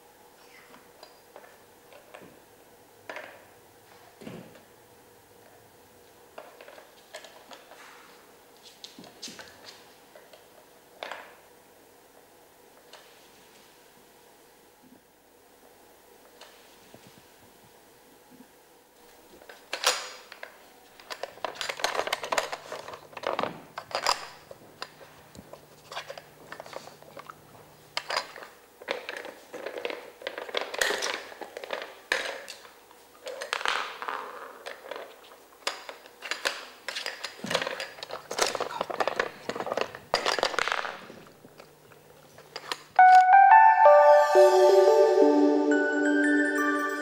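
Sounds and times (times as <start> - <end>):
plastic puzzle pieces clattering: 33.2 - 41.1.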